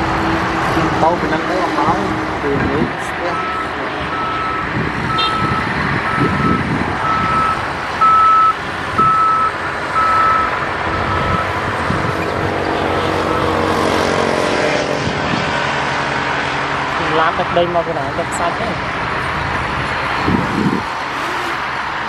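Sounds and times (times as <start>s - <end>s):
engine running: 0.0s - 22.0s
backup alarm beeping: 3.2s - 11.6s.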